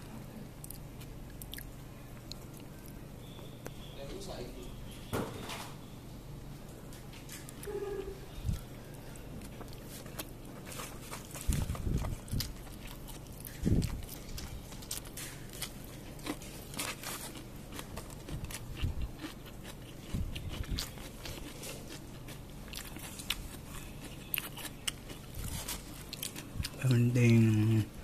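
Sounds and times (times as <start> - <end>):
faint low hum: 0.0 - 28.0
person chewing and crunching food: 0.6 - 3.4, 8.4 - 27.8.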